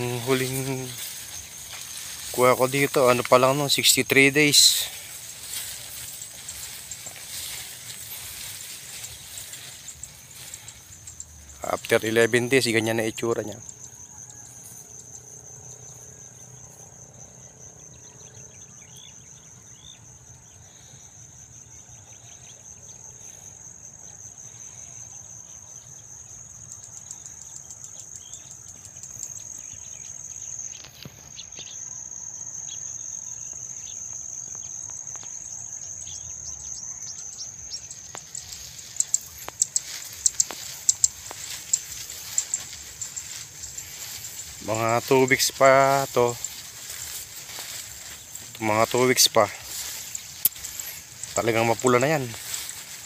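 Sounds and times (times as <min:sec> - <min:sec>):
rustling with sharp crackles: 0:00.0 - 0:11.6, 0:37.9 - 0:53.0
insect chorus trilling: 0:00.0 - 0:53.0.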